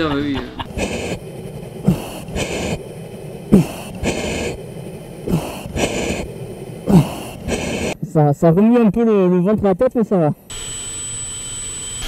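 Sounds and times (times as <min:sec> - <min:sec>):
hissing breath through oxygen mask: 0:00.6 - 0:08.0.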